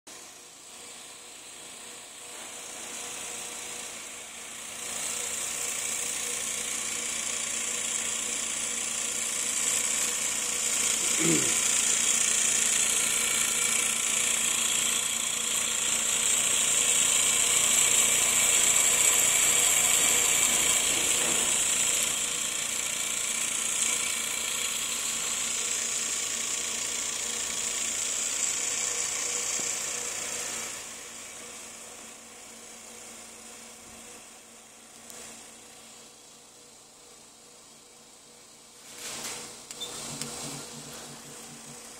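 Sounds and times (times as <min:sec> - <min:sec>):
machine whir and hiss: 0:00.1 - 0:41.9
fast rattling pulse: 0:03.0 - 0:30.8, 0:39.8 - 0:41.9.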